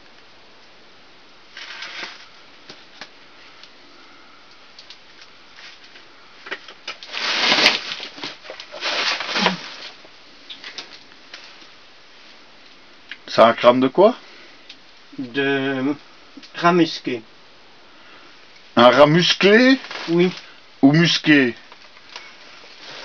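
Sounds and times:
rustling and scraping among rocks: 0:01.5 - 0:02.4, 0:05.5 - 0:11.7, 0:19.6 - 0:20.5, 0:22.2 - 0:23.0.

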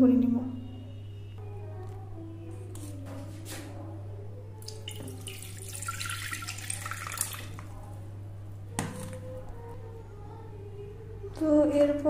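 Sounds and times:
water pouring into metal pot: 0:04.6 - 0:07.7.

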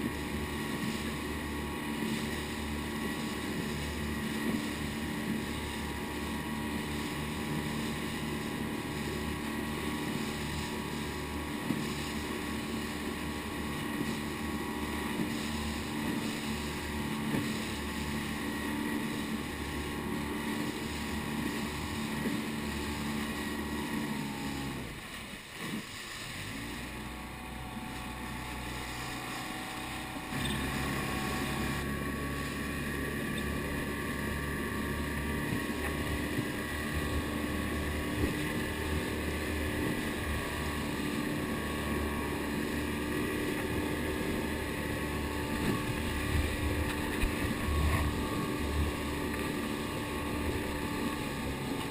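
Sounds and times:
outboard motor running: 0:00.0 - 0:51.9.

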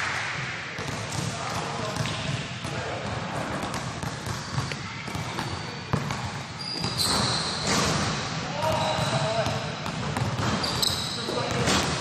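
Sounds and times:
basketball bouncing: 0:00.8 - 0:12.0
short high squeaks: 0:06.6 - 0:07.8, 0:10.6 - 0:11.3.

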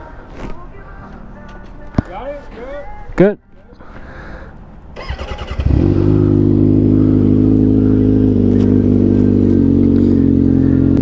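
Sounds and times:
motorcycle engine running: 0:05.0 - 0:11.0.

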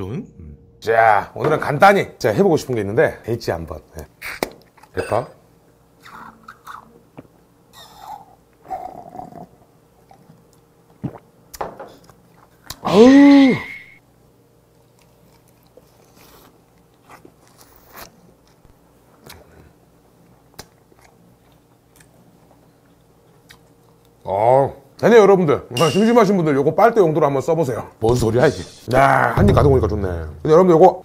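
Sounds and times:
man exclaiming aww: 0:12.8 - 0:13.8
man chewing: 0:14.7 - 0:24.2.

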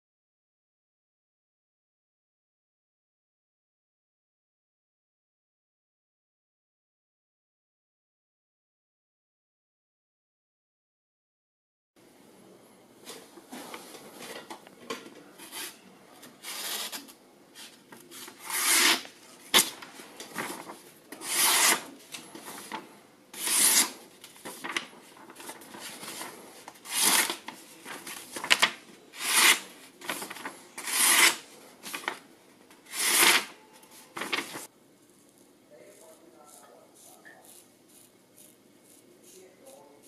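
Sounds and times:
paper rustling: 0:13.1 - 0:32.3, 0:32.9 - 0:35.5
knife slicing paper: 0:16.4 - 0:22.8, 0:23.4 - 0:32.2, 0:32.9 - 0:34.7.

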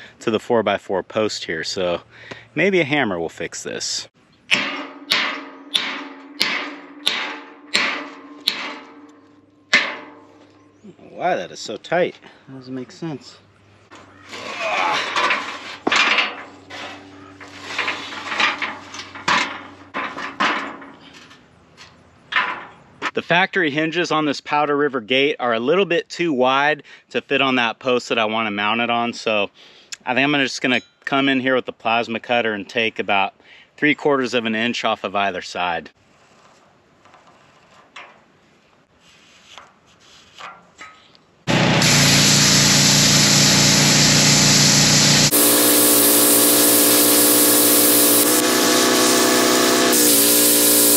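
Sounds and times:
faint short scrapes: 0:36.0 - 0:37.8, 0:38.8 - 0:40.6
plasma cutter hissing: 0:42.1 - 0:50.9.

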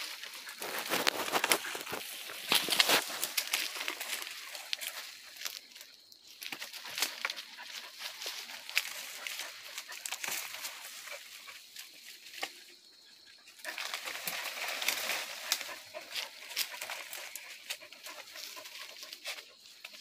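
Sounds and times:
brush rustling: 0:00.0 - 0:12.8, 0:13.5 - 0:20.0
twigs snapping: 0:00.5 - 0:05.8
dogs yelping: 0:06.7 - 0:11.7, 0:15.2 - 0:19.5.

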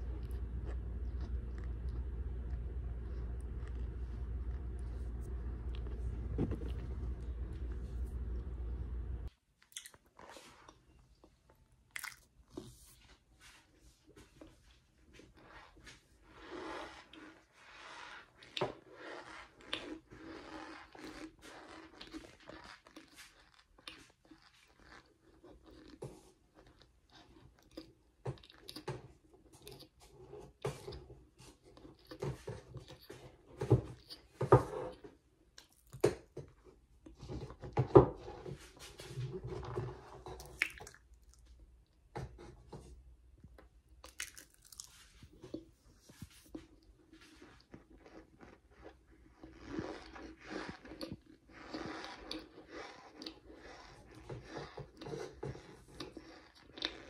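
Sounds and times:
person chewing crunchily: 0:00.0 - 0:09.0, 0:09.6 - 0:10.8, 0:11.9 - 0:12.6, 0:18.4 - 0:30.6, 0:35.6 - 0:36.4, 0:39.4 - 0:41.6, 0:43.6 - 0:57.0.

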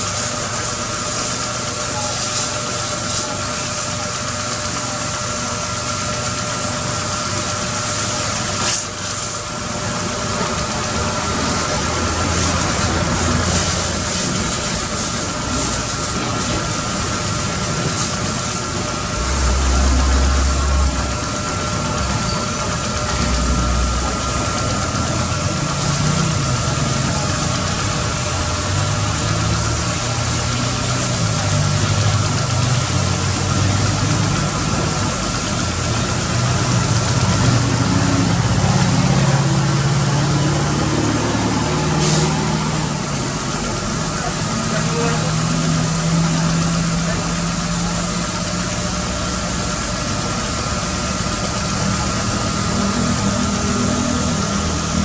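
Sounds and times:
pressure washer spray hissing: 0:00.0 - 0:04.2, 0:07.8 - 0:22.4, 0:23.2 - 0:48.2
machine mechanical drone: 0:00.0 - 0:55.0.

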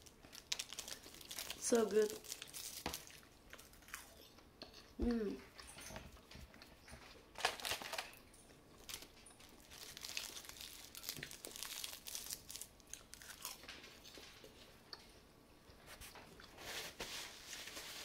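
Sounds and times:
seaweed crackling: 0:00.0 - 0:04.0, 0:08.8 - 0:13.6
chewing crunches: 0:00.2 - 0:04.9, 0:08.8 - 0:14.2.

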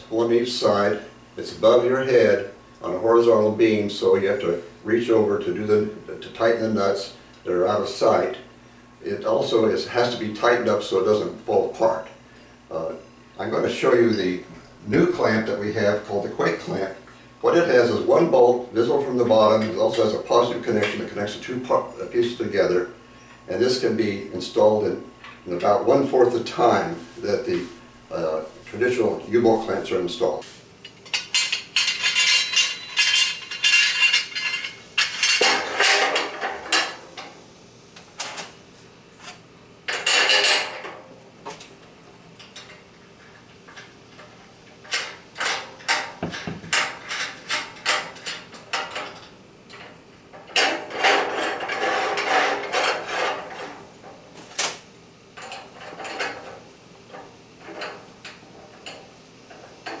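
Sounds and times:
metal clamp pieces clinking: 0:31.1 - 0:36.2.

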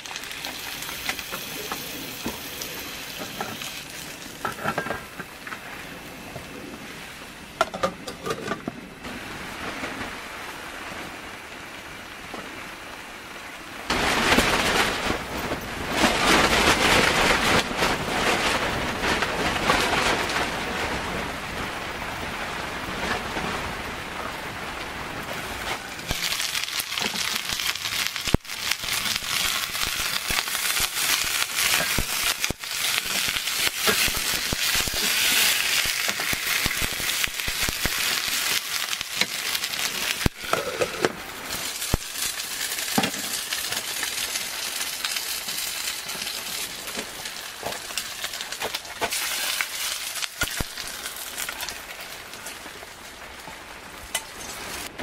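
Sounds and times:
dumplings sizzling in a pan: 0:00.0 - 0:05.5, 0:26.0 - 0:54.9.

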